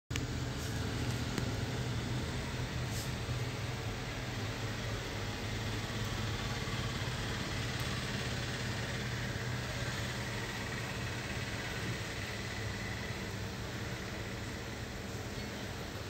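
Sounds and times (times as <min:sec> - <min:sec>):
even hiss: 0:02.8 - 0:03.4.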